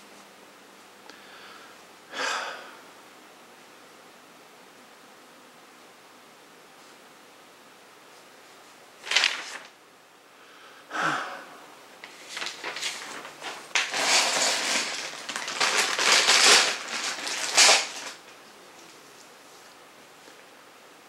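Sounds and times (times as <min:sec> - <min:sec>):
packaging rustling and crinkling: 0:09.0 - 0:09.7, 0:12.0 - 0:19.3.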